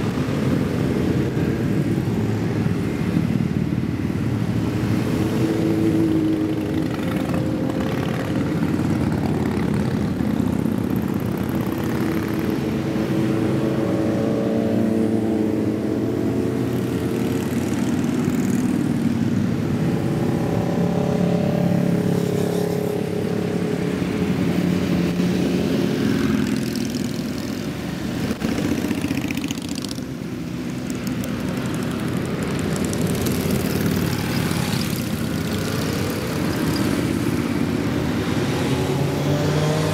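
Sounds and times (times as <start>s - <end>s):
motorcycles passing by: 0.0s - 39.9s.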